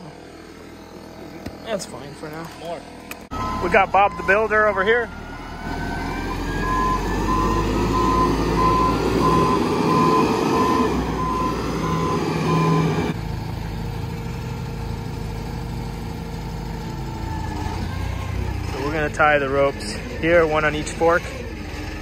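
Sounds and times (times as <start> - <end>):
engine running: 0.0 - 22.0
reversing alarm beeping: 3.3 - 13.2.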